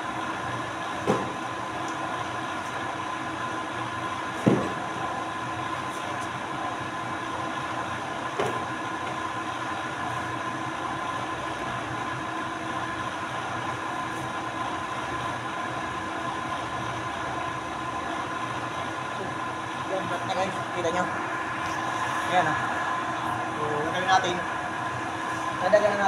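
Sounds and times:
machinery hum: 0.0s - 26.0s
paper stack thump: 1.0s - 1.4s, 4.4s - 4.8s.

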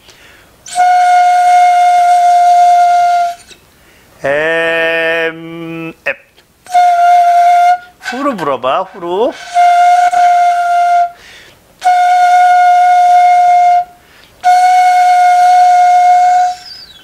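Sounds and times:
flute long held notes: 0.6s - 3.5s, 6.7s - 8.4s, 9.3s - 11.2s, 11.8s - 17.0s.

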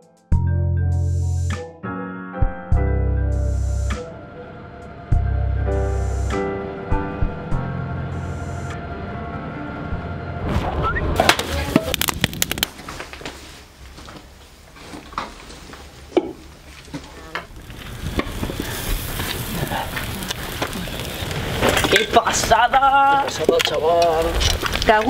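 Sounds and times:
background music: 0.0s - 11.3s
food sizzling on a grill: 17.7s - 23.4s.

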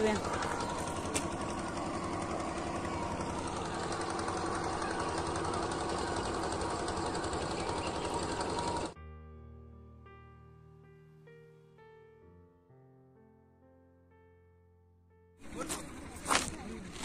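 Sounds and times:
small boat engine rattling: 0.0s - 9.0s, 15.4s - 17.0s
soft piano music: 0.0s - 16.2s.

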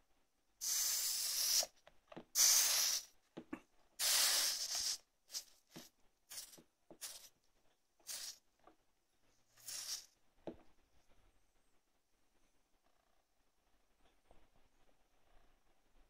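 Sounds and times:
soldering iron sizzling on wet sponge: 4.0s - 7.4s, 8.0s - 8.4s, 9.5s - 10.2s.

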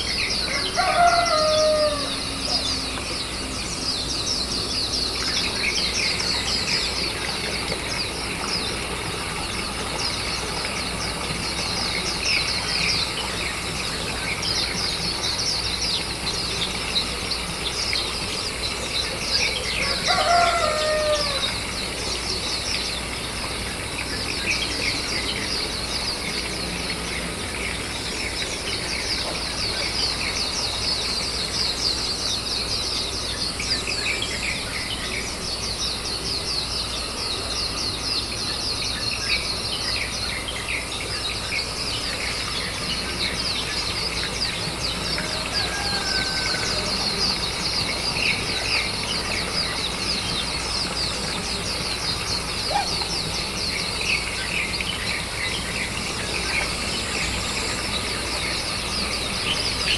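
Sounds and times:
rooster crowing: 0.4s - 2.9s, 19.8s - 21.7s, 44.9s - 48.3s.

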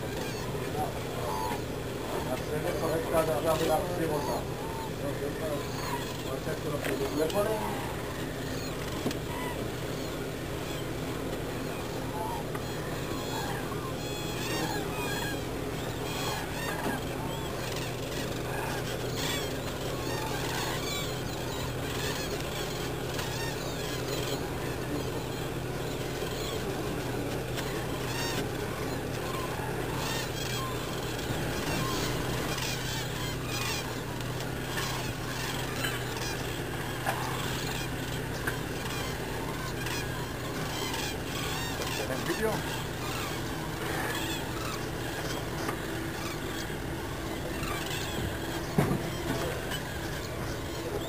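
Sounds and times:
cranes honking and trumpeting: 0.0s - 51.0s
distant wetland birds calling: 0.0s - 51.0s
steady low hum: 0.0s - 51.0s.

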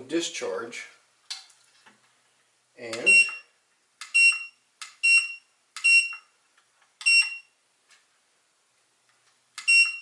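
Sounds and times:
short high beeps: 3.0s - 3.5s, 4.2s - 6.2s, 7.0s - 7.5s, 9.7s - 10.0s.

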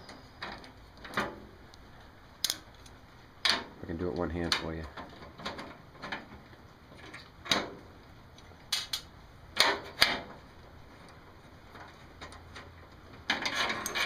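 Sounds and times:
metal screws clicking and knocking: 2.4s - 3.7s, 13.2s - 14.0s.

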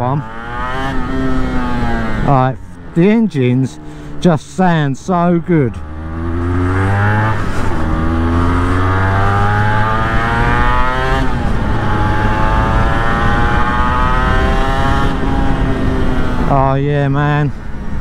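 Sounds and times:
motorcycle accelerating through gears: 0.0s - 3.0s, 5.6s - 16.8s.

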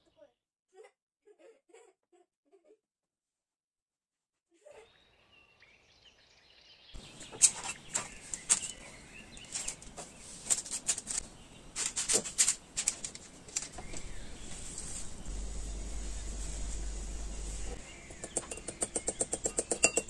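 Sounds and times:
parchment paper crackling: 7.0s - 17.8s.

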